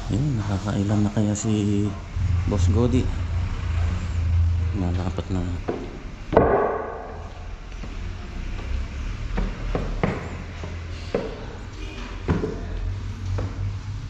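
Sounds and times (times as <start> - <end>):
low rumble: 1.9 - 5.6
wooden planks knocking: 5.7 - 7.3.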